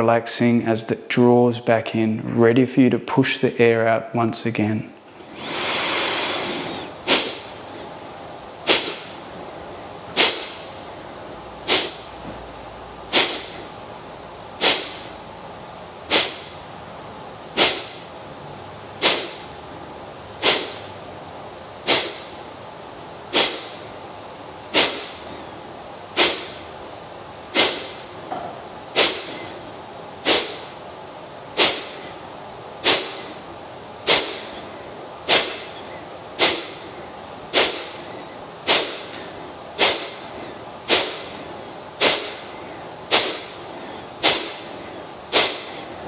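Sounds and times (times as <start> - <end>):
forceful nasal exhalations: 5.2 - 7.5, 8.6 - 9.2, 10.1 - 10.6, 11.6 - 12.1, 13.1 - 13.7, 14.6 - 15.1, 16.1 - 16.5, 17.6 - 18.0, 19.0 - 19.4, 20.4 - 20.9, 21.8 - 22.3, 23.3 - 23.8, 24.7 - 25.3, 26.2 - 26.6, 27.5 - 28.1, 28.9 - 29.6, 30.2 - 30.7, 31.6 - 32.2, 32.8 - 33.4, 34.0 - 34.7, 35.3 - 35.8, 36.4 - 46.0.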